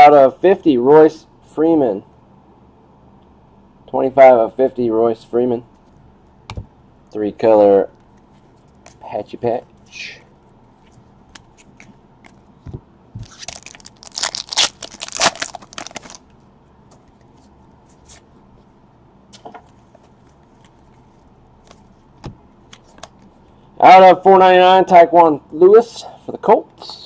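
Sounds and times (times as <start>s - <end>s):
trading cards crinkling and scraping: 7.9s - 18.4s, 19.3s - 23.5s.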